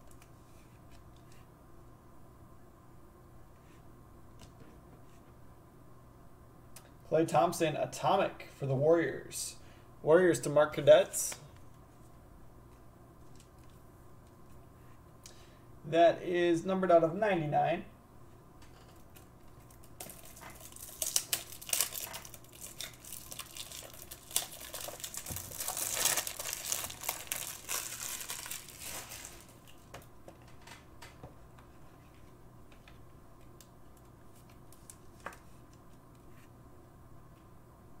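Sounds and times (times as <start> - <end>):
plastic crinkling and rustling: 19.0 - 30.8.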